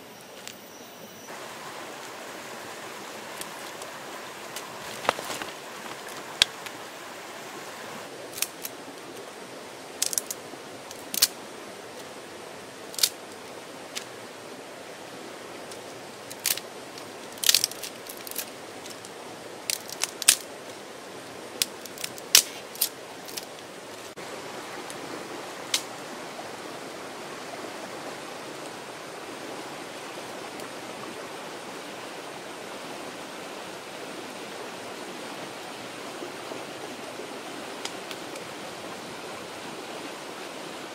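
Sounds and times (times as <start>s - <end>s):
stream rushing: 0.0s - 40.9s
wooden sticks snapping: 4.5s - 6.8s, 8.3s - 8.8s, 10.0s - 11.4s, 13.0s - 13.2s, 15.7s - 16.6s, 17.4s - 19.1s, 19.7s - 20.5s, 21.6s - 23.6s.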